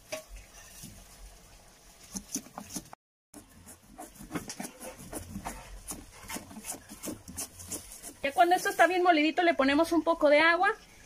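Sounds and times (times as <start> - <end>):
stone pestle grinding spices: 2.2 - 8.7.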